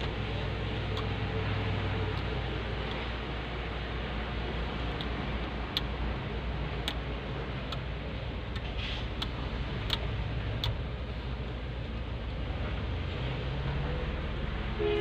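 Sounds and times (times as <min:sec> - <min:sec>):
light clicks of plastic parts: 0:08.5 - 0:10.8.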